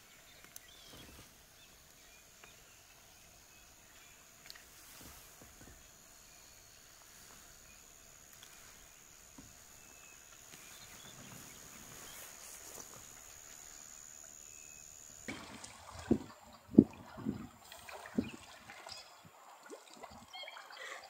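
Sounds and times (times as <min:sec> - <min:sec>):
high-pitched insect drone: 0:05.7 - 0:15.3
water sloshing and splashing: 0:15.2 - 0:21.0.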